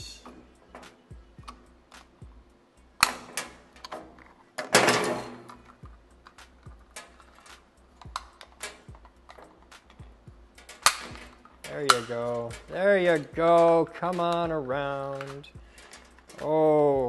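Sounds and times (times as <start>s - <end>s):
plastic snapping: 3.0s - 10.0s, 10.6s - 12.6s.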